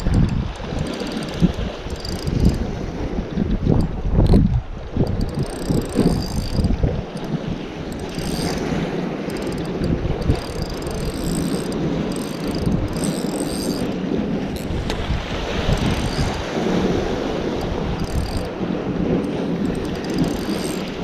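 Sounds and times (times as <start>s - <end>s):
wind buffeting microphone: 0.0s - 21.0s
waves washing over rocks: 13.9s - 20.2s.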